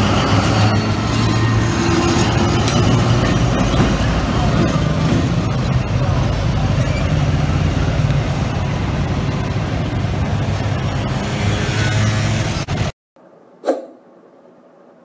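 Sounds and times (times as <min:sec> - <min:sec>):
locomotive engine rumble: 0:00.0 - 0:11.2
street traffic: 0:00.0 - 0:13.0.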